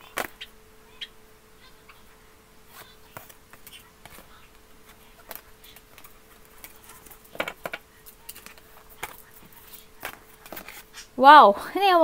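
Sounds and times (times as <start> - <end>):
cards being shuffled: 2.7 - 11.1.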